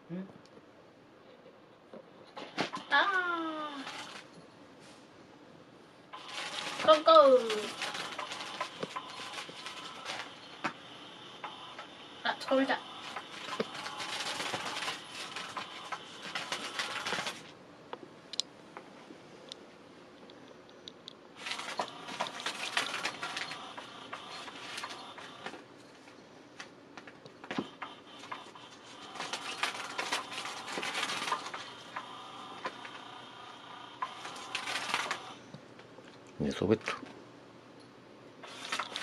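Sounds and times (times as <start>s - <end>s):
toy motor whirring and rattling: 2.9s - 4.4s, 6.2s - 10.6s, 12.4s - 17.4s, 21.4s - 25.4s, 28.2s - 33.1s.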